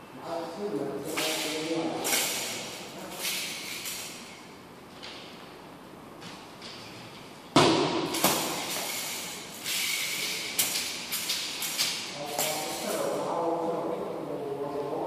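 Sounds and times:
spear thuds echoing in a hall: 7.5 - 8.9.

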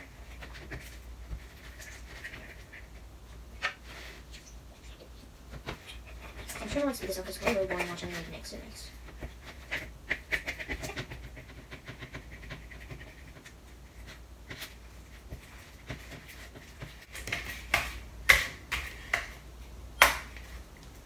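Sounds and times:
spatula stirring slime: 0.0 - 19.7.

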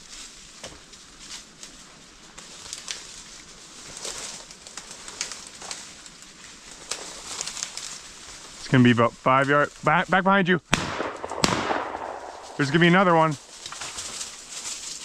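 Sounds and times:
footsteps through brush: 0.0 - 10.2, 11.0 - 15.0
leaves and twigs crackling: 0.0 - 15.0.

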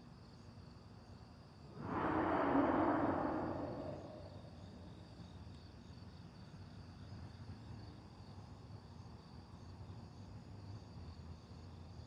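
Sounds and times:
crickets chirping: 0.1 - 12.0
low rumble: 1.8 - 5.3.

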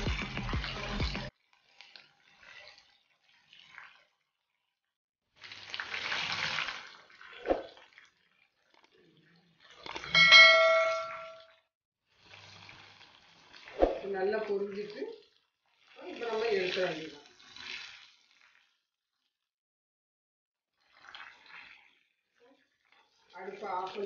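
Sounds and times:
hot oil sizzling: 0.0 - 4.1, 5.4 - 8.2, 12.1 - 18.8, 22.4 - 24.0
ringing bell ding: 10.1 - 11.5.

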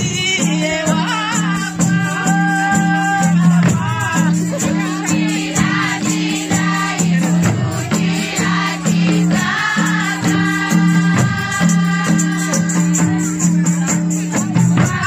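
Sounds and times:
frame drums beating: 0.0 - 15.0
women singing together: 0.9 - 15.0.

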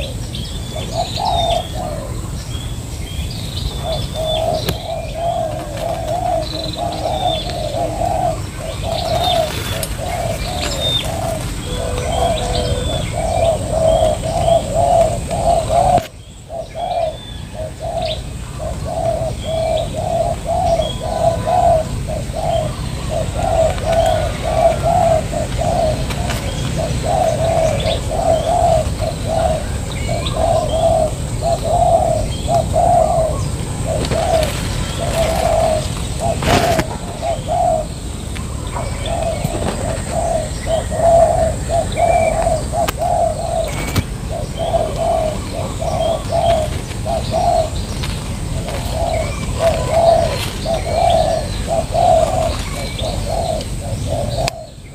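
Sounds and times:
doves cooing: 0.0 - 54.9
small birds chirping: 0.0 - 54.9.

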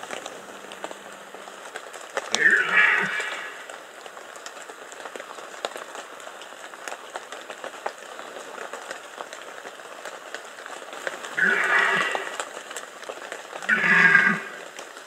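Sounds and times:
light rain pattering: 0.0 - 15.0
deer stag roaring: 2.4 - 3.7, 11.4 - 12.4, 13.7 - 14.7
raindrops ticking: 3.2 - 15.0.

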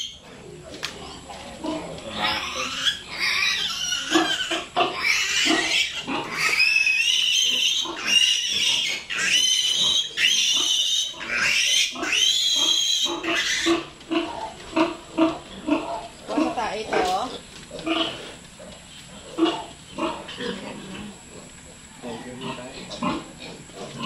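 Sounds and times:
piglet squealing: 2.2 - 13.9.

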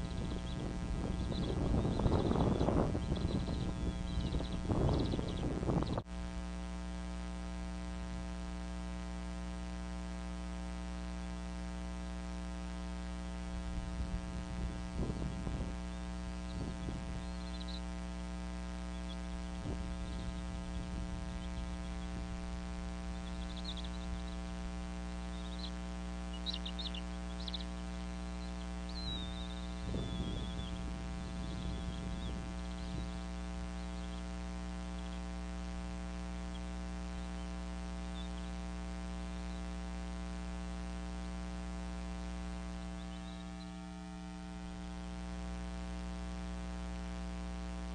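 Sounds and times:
high bird chirps: 0.0 - 6.0, 15.2 - 17.9, 18.9 - 22.2, 23.1 - 24.5, 25.2 - 27.8, 28.4 - 34.3, 43.0 - 43.8
steady electrical hum: 0.0 - 47.9.

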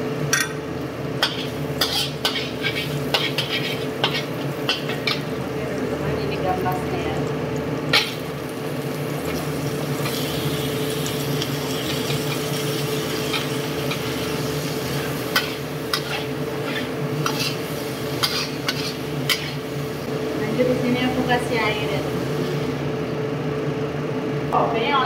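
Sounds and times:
frying sizzle: 0.0 - 24.6
spatula scraping in a wok: 1.2 - 5.4, 9.9 - 20.1.

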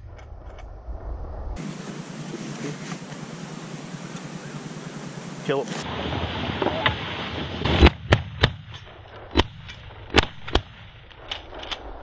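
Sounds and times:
shotgun shots: 7.6 - 11.6.

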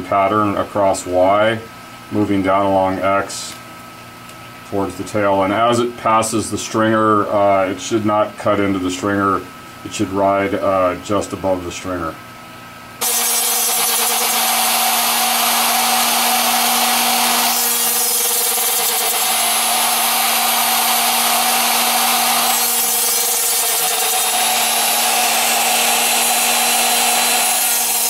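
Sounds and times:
router cutting foam: 13.0 - 28.0.

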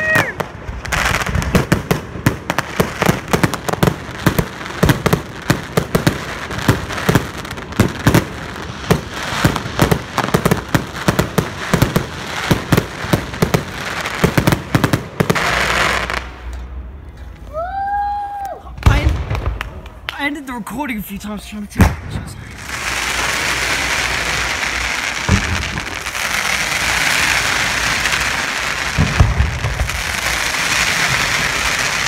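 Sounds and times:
firework crackling: 0.0 - 21.0, 21.7 - 32.0
firework shells bursting: 21.8 - 32.0.

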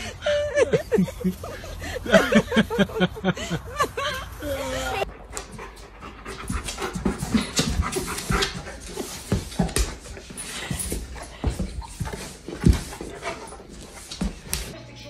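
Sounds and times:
dog panting: 4.8 - 14.6.

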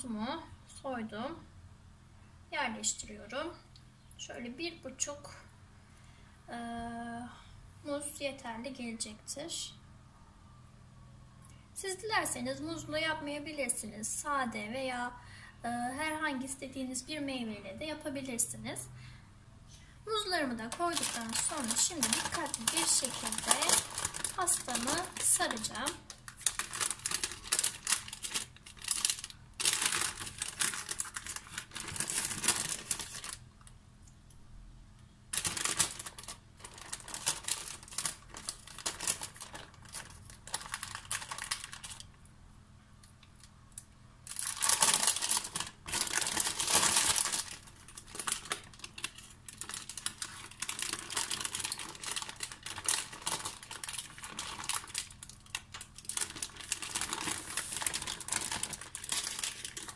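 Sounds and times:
baking paper crinkling: 20.1 - 33.5, 35.3 - 42.2, 44.2 - 59.9.

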